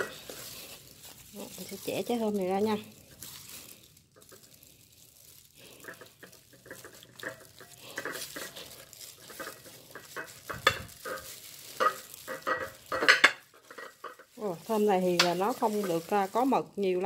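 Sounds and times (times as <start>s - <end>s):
plastic gloves crinkling: 0.0s - 17.0s
fruit cracking apart: 2.8s - 14.4s.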